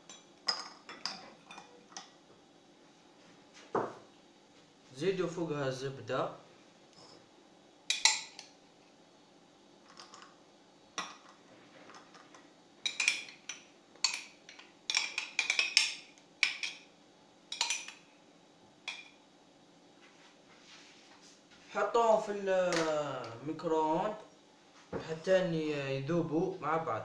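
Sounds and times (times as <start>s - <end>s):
metal spoon clinking on glass: 7.9s - 8.5s, 17.5s - 18.0s.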